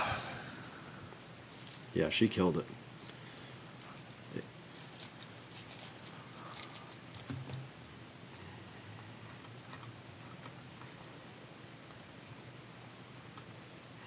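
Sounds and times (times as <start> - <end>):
trading cards clicking and scraping: 3.0 - 7.6.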